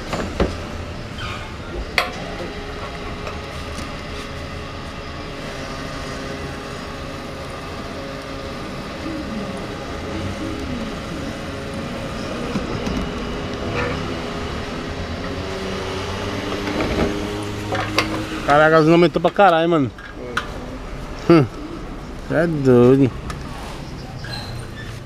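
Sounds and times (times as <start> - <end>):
fuel dispenser humming: 1.9 - 21.7.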